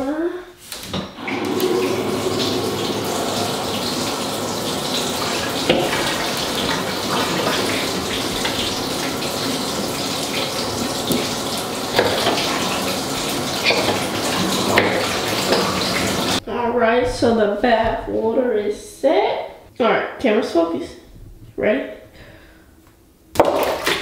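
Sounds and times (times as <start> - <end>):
water pouring into a bathtub: 1.2 - 16.4, 23.4 - 24.0.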